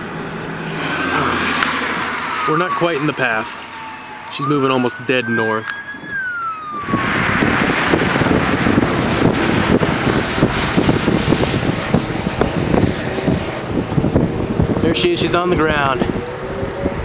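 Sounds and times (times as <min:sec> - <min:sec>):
wind buffeting microphone: 0:02.4 - 0:17.0.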